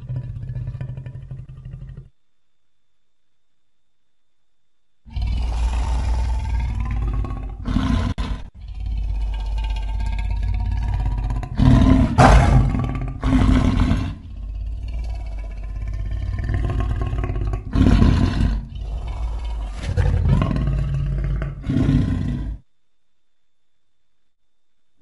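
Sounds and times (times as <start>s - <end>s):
big cat roars: 0.0s - 2.1s, 5.1s - 22.6s
low growl: 0.0s - 2.2s, 5.1s - 22.6s.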